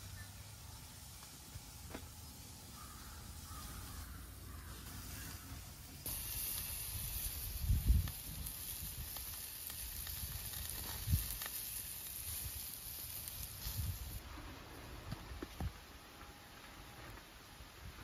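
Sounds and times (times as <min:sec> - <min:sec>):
meat sizzling on a grill: 0:00.0 - 0:14.2.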